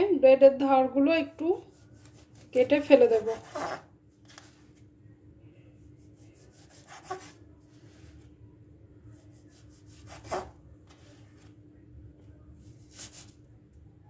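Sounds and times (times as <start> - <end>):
knife sawing through bread: 1.7 - 3.8, 6.4 - 7.4, 9.8 - 10.5.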